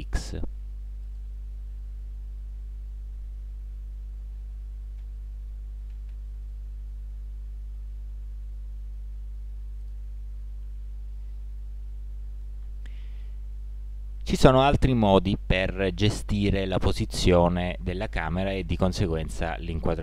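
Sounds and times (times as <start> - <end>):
low electrical hum: 0.0 - 20.0
faint clicks: 5.8 - 6.2.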